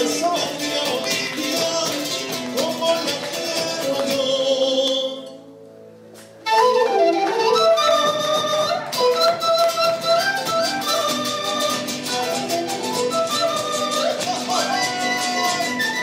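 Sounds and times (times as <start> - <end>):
folk band playing strings and drum: 6.7 - 16.0.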